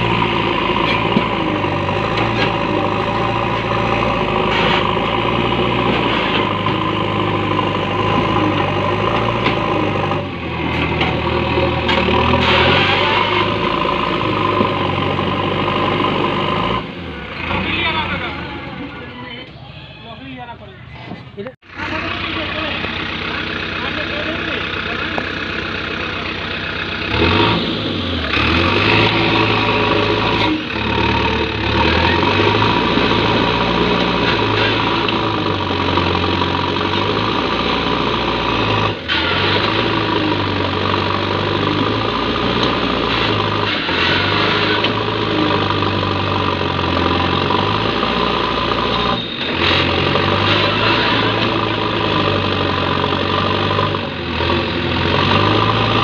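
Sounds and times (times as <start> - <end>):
diesel engine revving under load: 0.0 - 19.1, 21.6 - 56.0.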